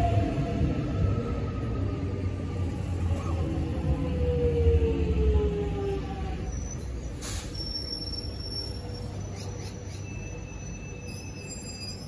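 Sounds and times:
electric train rumbling past: 0:00.0 - 0:12.0
wheel squeals: 0:06.5 - 0:12.0.

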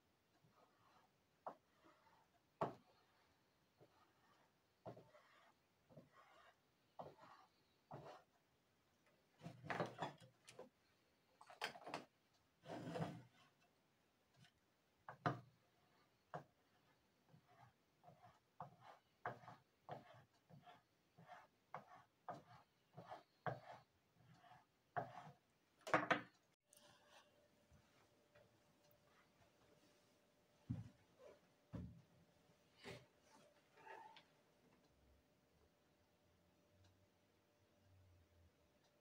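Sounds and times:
metal planer scraping wax: 0:12.6 - 0:13.6.

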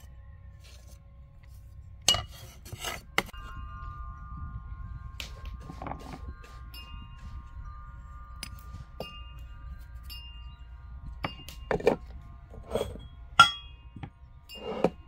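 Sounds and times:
soft chiming tones: 0:03.3 - 0:15.0
ceramic bowls knocking and clinking: 0:12.7 - 0:15.0.

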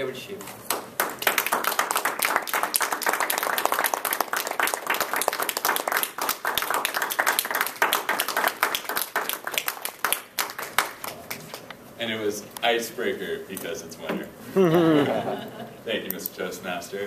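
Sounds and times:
audience applause: 0:01.0 - 0:11.5.

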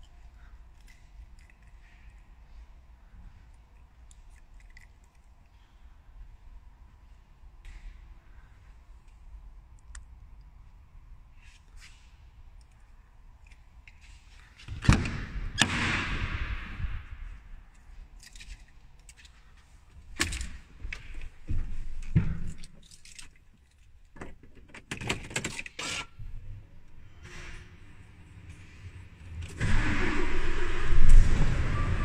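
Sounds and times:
rushing noise: 0:29.5 - 0:32.0.

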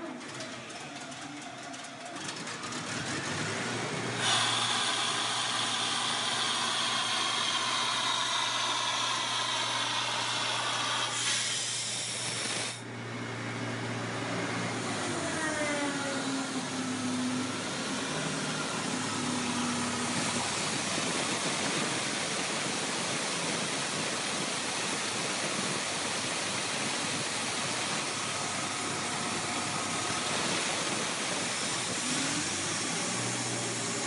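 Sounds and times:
air compressor running: 0:00.0 - 0:34.0
compressed air hissing from valve: 0:04.2 - 0:12.8.

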